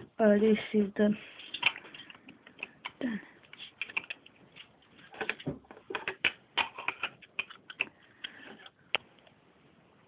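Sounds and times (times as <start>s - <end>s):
plastic bricks clicking: 1.4s - 8.8s.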